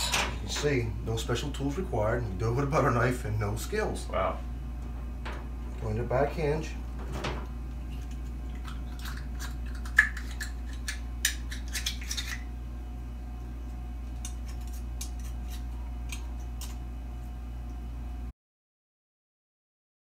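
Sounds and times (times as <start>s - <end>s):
low hum: 0.0s - 18.3s
knife scraping oyster shell: 9.0s - 12.5s, 14.2s - 16.8s.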